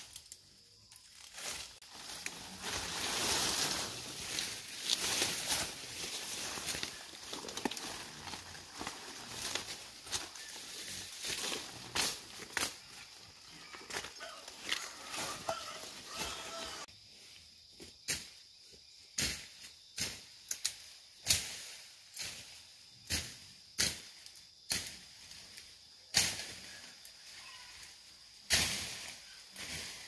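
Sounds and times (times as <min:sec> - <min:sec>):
rustling swishes of weeds pulled: 0:01.2 - 0:12.7.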